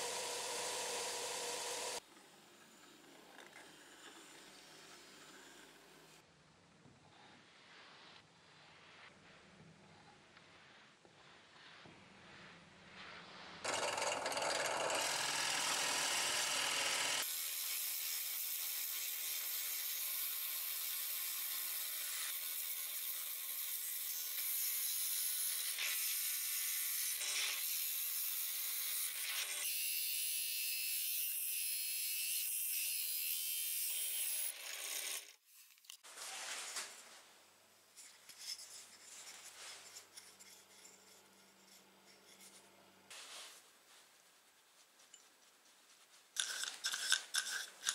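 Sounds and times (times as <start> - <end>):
drill press motor hum: 0.0 - 2.0
drill bit boring into wood: 13.6 - 17.3.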